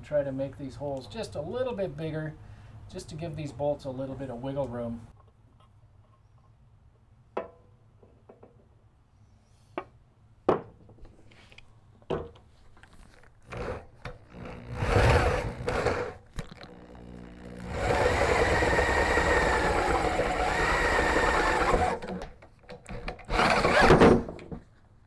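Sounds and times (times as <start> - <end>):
electric drill boring metal: 13.5 - 22.3, 22.9 - 24.2.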